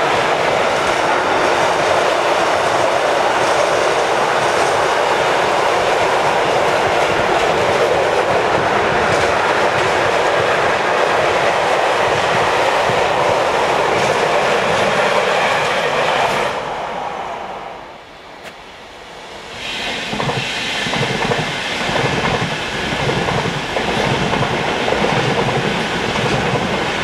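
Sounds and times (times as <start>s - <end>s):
freight train passing: 0.0s - 27.0s.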